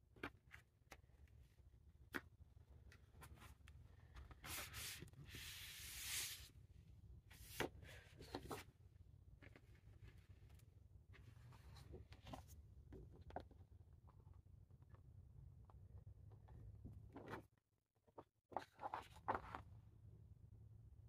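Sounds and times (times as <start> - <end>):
paper sheet sliding and rustling: 4.4 - 6.5.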